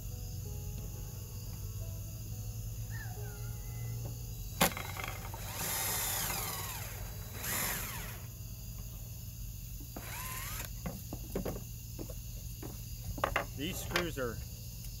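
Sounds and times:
cordless drill boring: 4.6 - 8.3, 10.0 - 11.0.

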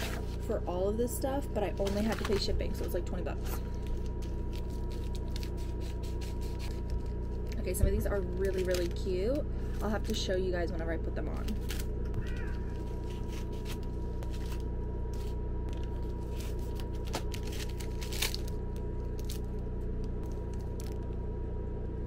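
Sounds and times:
low hum with high whine: 0.0 - 22.0
plastic packaging crinkling: 1.7 - 3.0, 3.6 - 9.1, 11.6 - 19.6.

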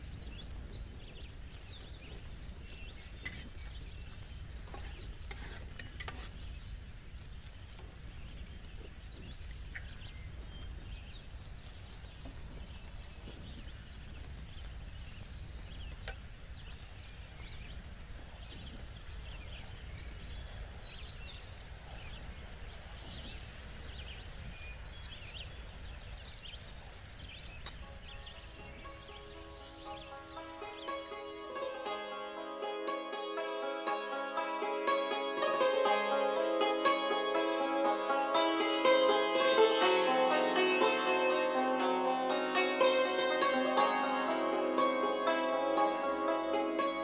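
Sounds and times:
small birds chirping: 0.0 - 47.0.

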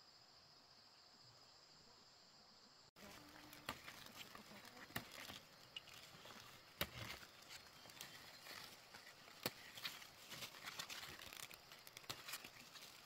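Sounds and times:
insects chirping: 0.0 - 13.0
bean pods snapping: 3.0 - 13.0
leaves rustling: 3.0 - 13.0.

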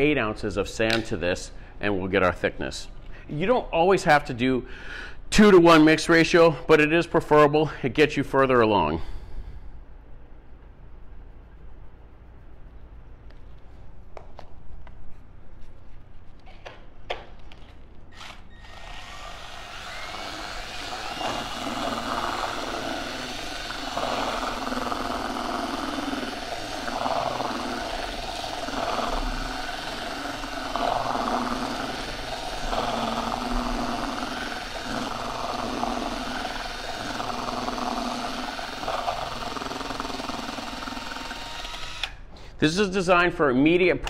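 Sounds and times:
drill mixer churning mix: 18.1 - 42.2
thin motor whine: 18.1 - 42.2.

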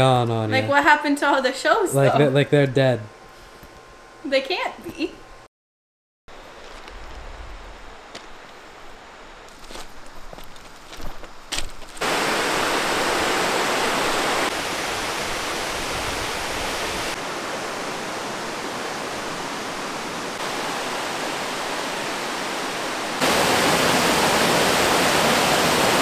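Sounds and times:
footsteps crunching on ballast: 6.4 - 8.7, 9.4 - 12.0
creek rushing over rocks: 12.0 - 26.0.

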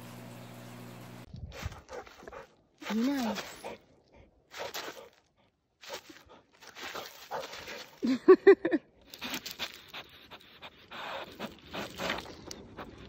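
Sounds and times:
dog panting and sniffing: 1.5 - 8.0, 9.1 - 13.0.

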